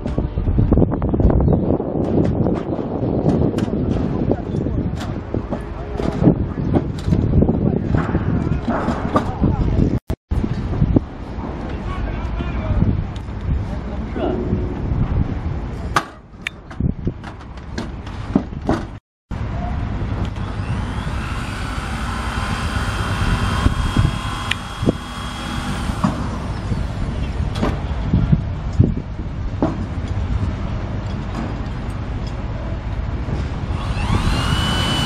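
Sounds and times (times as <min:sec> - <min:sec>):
wind rumble on microphone: 0:00.0 - 0:35.0
electric screw gun running: 0:20.4 - 0:27.0, 0:33.8 - 0:35.0.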